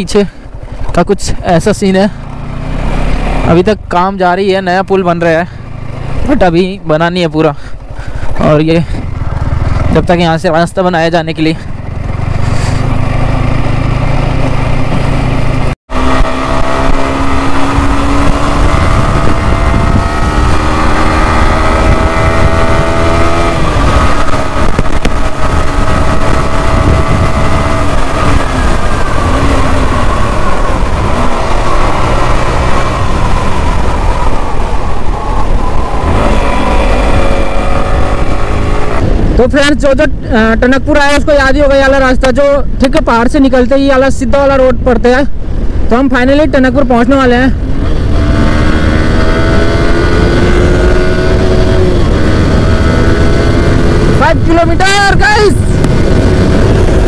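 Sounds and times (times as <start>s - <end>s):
motorcycle engine accelerating: 0.0s - 42.1s, 46.9s - 57.0s
wind noise on microphone: 11.6s - 57.0s.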